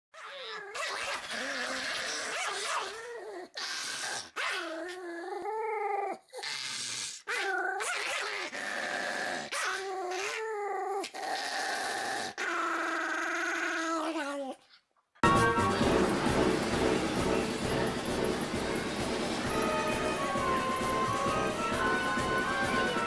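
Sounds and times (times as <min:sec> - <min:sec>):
dog growling: 0:00.2 - 0:14.8.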